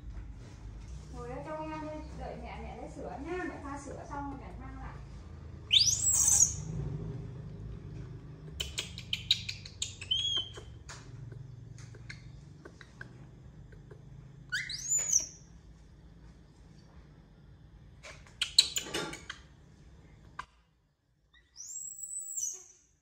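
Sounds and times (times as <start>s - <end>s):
monkey squealing: 14.5s - 15.3s.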